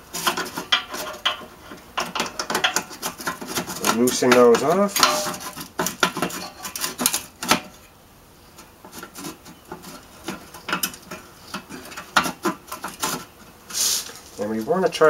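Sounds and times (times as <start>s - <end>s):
metal taps: 0.2s - 3.4s, 4.3s - 7.8s.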